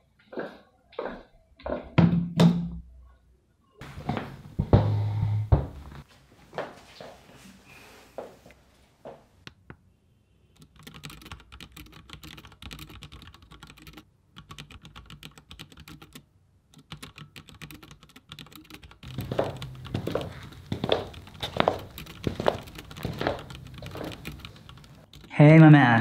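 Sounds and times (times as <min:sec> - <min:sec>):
laptop keyboard typing: 0:10.5 - 0:25.4.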